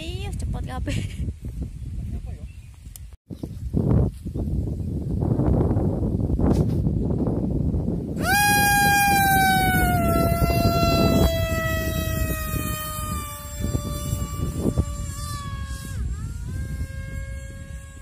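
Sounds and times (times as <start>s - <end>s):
electric motor high whine: 8.2s - 18.0s.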